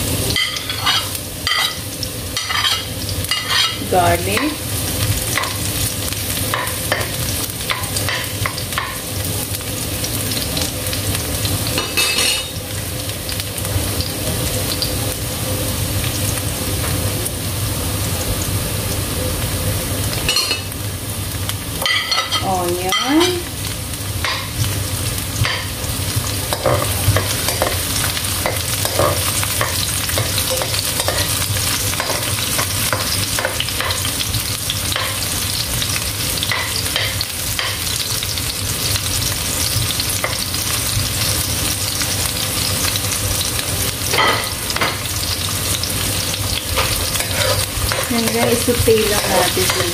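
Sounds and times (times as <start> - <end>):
food sizzling in hot oil: 0.0 - 49.9
spatula scraping wok: 0.4 - 1.8, 2.4 - 4.4, 46.6 - 49.9.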